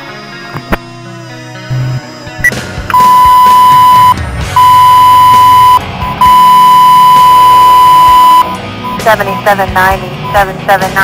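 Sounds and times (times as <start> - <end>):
radio alert beeps: 2.4 - 10.6.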